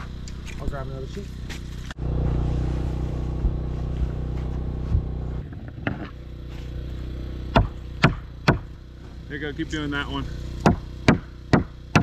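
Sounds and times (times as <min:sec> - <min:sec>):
engine running: 0:00.0 - 0:12.0
hammer knocking on wood sheet: 0:10.6 - 0:12.0.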